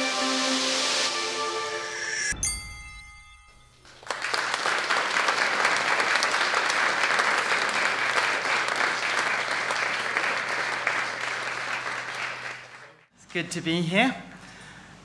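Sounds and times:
ringing music note: 0.0 - 4.0
audience applause: 4.0 - 13.0.

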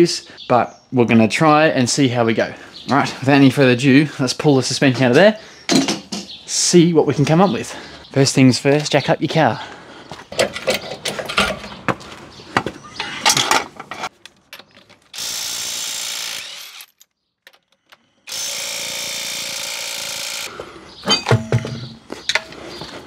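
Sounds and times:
hand tools clanking on metal: 10.3 - 11.8, 21.0 - 22.6
power tool running: 15.1 - 17.0, 18.2 - 20.6.

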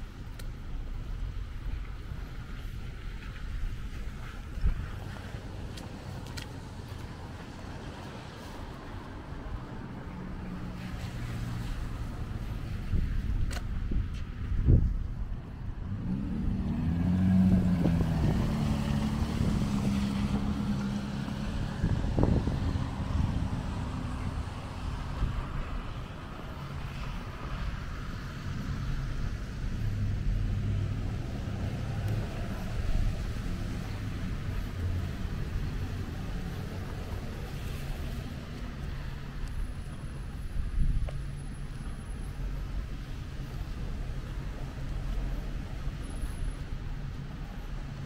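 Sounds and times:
vehicle passing: 15.8 - 40.8.

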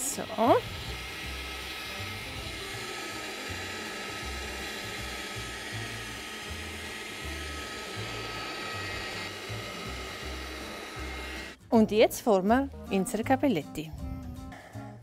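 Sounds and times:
pasta machine motor whirring: 0.0 - 11.7
quiet background music: 0.0 - 15.0.

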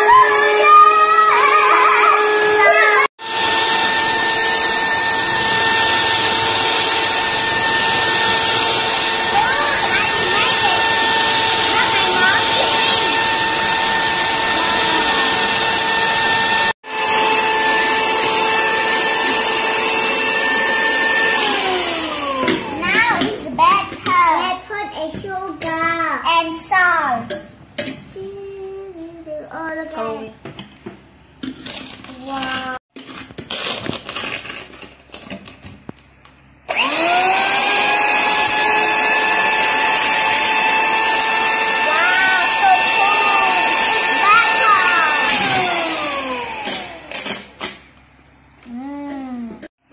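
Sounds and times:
electric hand mixer whine: 0.0 - 23.2, 36.7 - 47.7.

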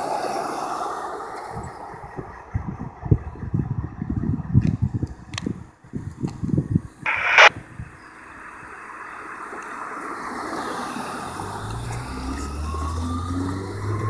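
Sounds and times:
diesel engine rumble: 0.6 - 6.0, 8.5 - 14.0
microphone handling rubbing: 7.1 - 7.5.

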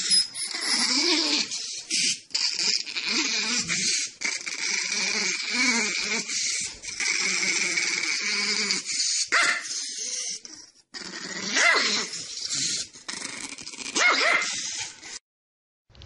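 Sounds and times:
dog barking: 9.3 - 9.7, 11.6 - 12.0, 14.0 - 14.6.

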